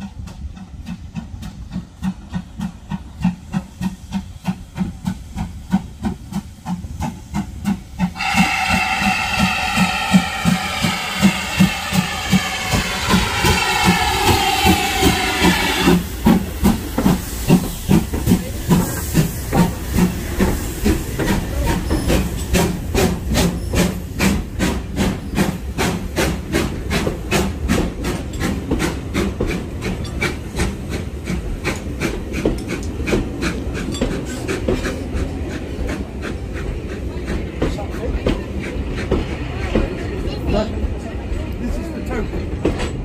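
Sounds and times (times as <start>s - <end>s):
steam locomotive hissing and chuffing: 0.0s - 43.0s
train wheels clattering over rail joints: 10.5s - 41.0s, 42.2s - 43.0s.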